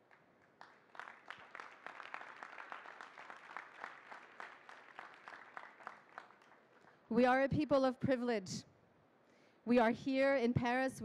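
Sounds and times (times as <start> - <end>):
light applause: 0.0 - 7.1.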